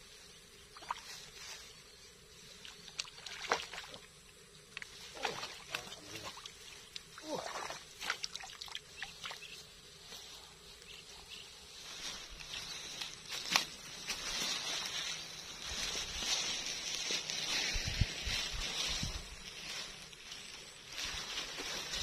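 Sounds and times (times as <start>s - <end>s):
fish splashing in a landing net: 2.9s - 4.0s, 5.1s - 9.4s
rustling: 9.6s - 22.0s.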